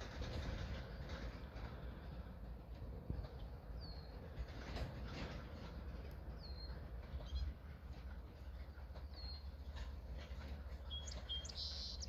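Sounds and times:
small birds chirping: 10.7 - 12.0.

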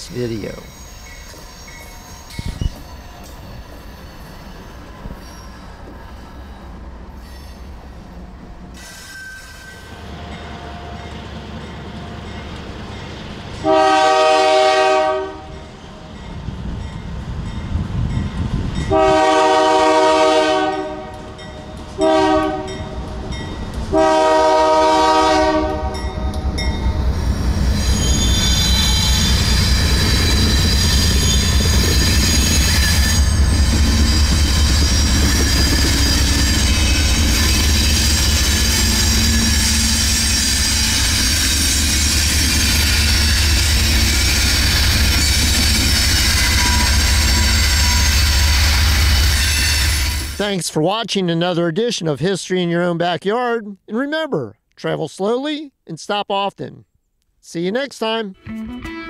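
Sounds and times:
locomotive engines and wheels: 0.0 - 13.7, 26.1 - 50.4
train rolling past rumble: 0.0 - 50.5
locomotive air horn: 13.6 - 15.6, 18.9 - 21.4, 22.0 - 22.9, 23.9 - 26.0.

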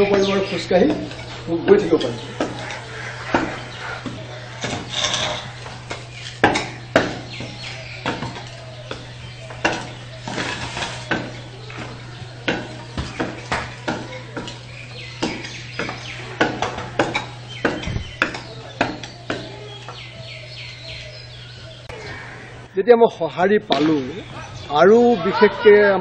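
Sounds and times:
stilts clacking on concrete: 0.0 - 20.1.

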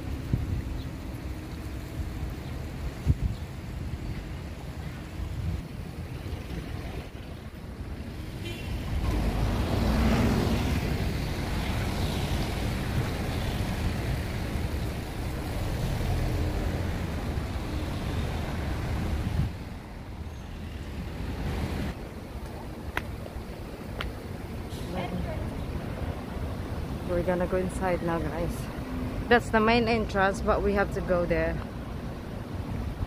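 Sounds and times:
wind on microphone: 0.0 - 1.0, 2.0 - 20.3
street traffic rumble: 0.0 - 33.0.

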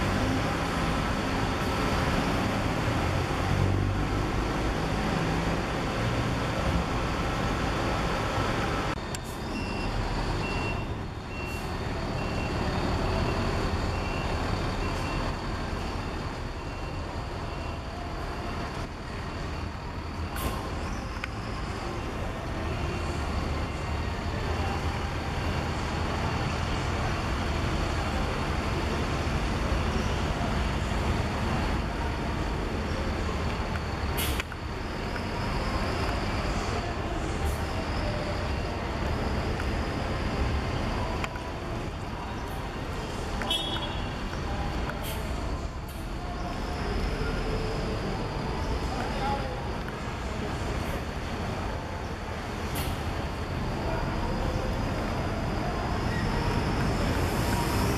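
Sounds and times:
reversing beeper: 9.1 - 18.7.

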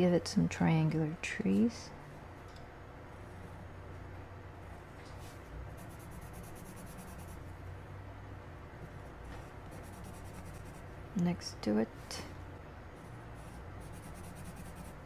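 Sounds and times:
coloured pencil scratching on paper: 5.7 - 7.5, 9.0 - 10.8, 13.0 - 15.0.

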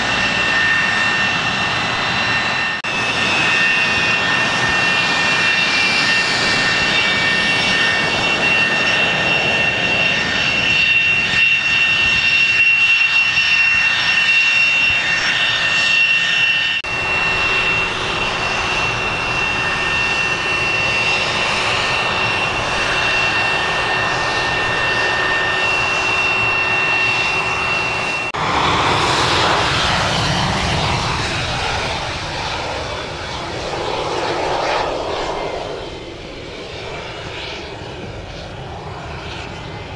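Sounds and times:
jet engines running: 0.0 - 39.9.

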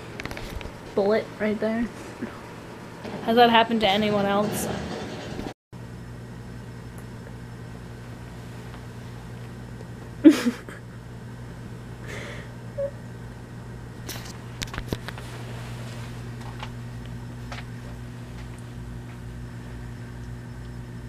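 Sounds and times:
steady low hum: 0.0 - 21.0
bedding rustling: 15.1 - 18.4.

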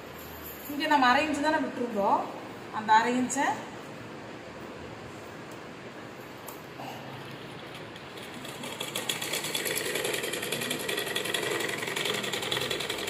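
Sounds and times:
sewing machine running: 7.3 - 13.0.

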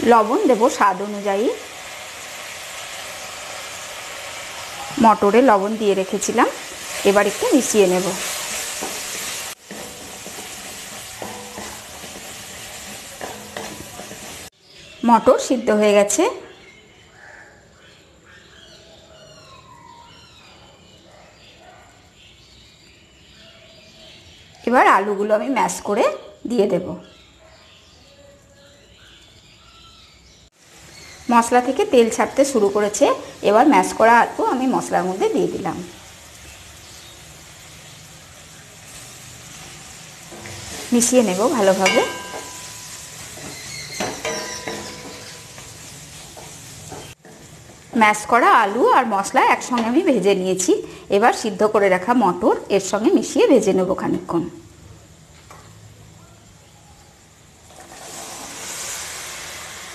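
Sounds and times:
oil sizzling: 0.0 - 16.2, 30.5 - 56.2, 57.2 - 59.9
small birds chirping: 4.8 - 47.2
wooden spatula scraping a pan: 6.6 - 14.5, 38.9 - 47.9.

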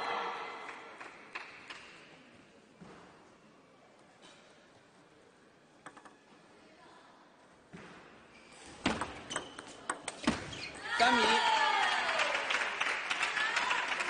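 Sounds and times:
table tennis ball clicks: 5.8 - 6.2.

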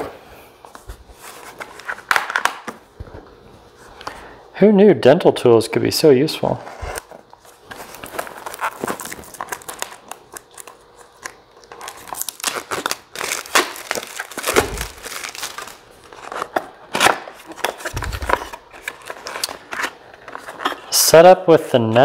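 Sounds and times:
cardboard and plastic crinkling: 6.9 - 20.9.

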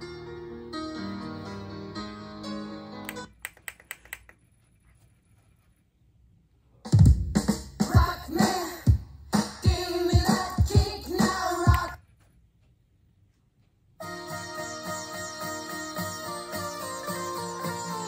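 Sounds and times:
sharp clicks of track skipping: 3.0 - 4.4
loud music with heavy drum hits: 7.0 - 11.9
guitar music from speakers: 14.0 - 18.0.

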